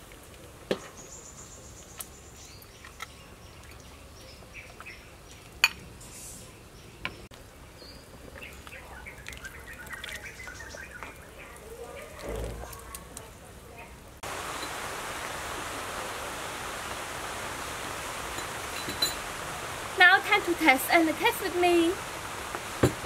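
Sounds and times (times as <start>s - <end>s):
birds chirping faintly: 0.8s - 16.2s.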